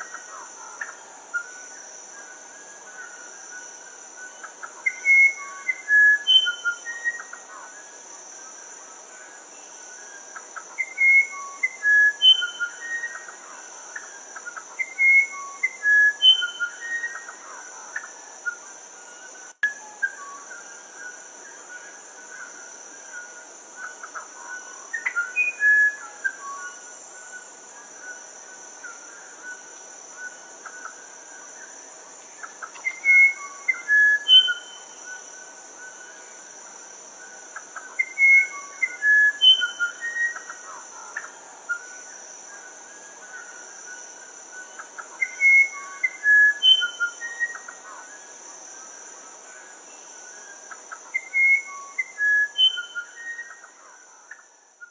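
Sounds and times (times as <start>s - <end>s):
high insect drone: 0.0s - 54.9s
bird whistling flute-like song: 4.8s - 7.3s, 10.8s - 13.2s, 14.8s - 17.3s, 32.9s - 34.9s, 38.0s - 40.5s, 45.2s - 47.7s, 51.2s - 53.6s.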